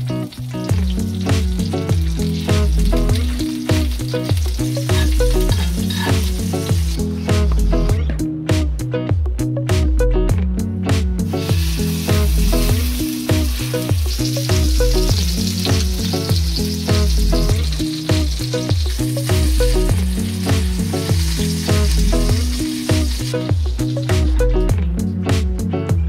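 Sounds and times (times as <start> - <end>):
steak sizzling in skillet: 0.0 - 7.6, 11.2 - 24.4
music with bass beat: 0.0 - 26.0.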